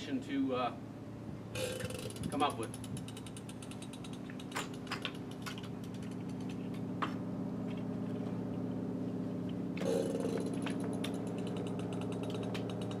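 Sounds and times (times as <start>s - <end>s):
low machine hum: 0.0s - 13.0s
rapid rattle of fine clicks: 1.8s - 6.9s, 10.4s - 13.0s
sharp clicks and knocks: 1.8s - 7.9s, 9.5s - 13.0s.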